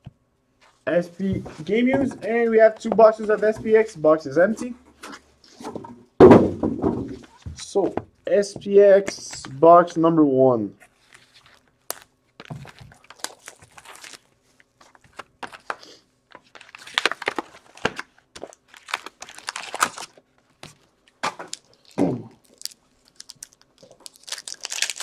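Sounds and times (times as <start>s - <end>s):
paper and packs crinkling: 10.9s - 25.0s.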